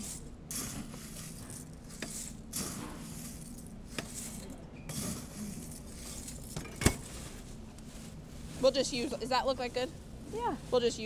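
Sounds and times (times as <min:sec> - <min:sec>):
cornflakes rustling: 0:00.0 - 0:06.6
steady low hum: 0:00.0 - 0:11.0.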